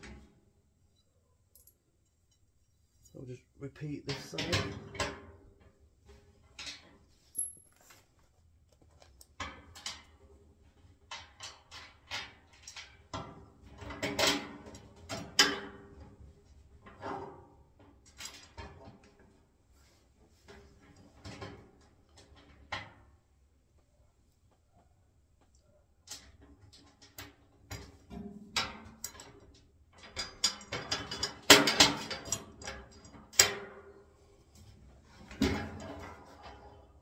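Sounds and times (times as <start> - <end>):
metallic clinks and knocks: 0.9 - 2.5, 6.6 - 7.8.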